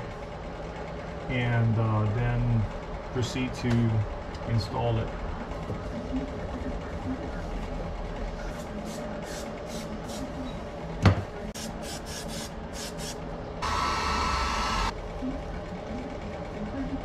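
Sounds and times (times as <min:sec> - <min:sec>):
handheld power tool running: 0:13.6 - 0:14.9.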